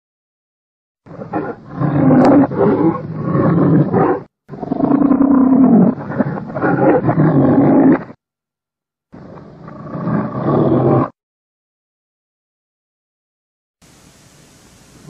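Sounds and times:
lion roaring: 1.1s - 8.2s, 9.2s - 11.2s.

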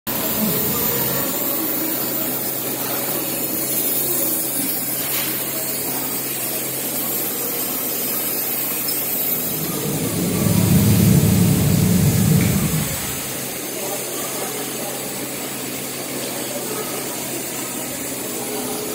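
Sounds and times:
factory machinery hum and hiss: 4.6s - 18.9s
low rumble: 9.4s - 13.4s.

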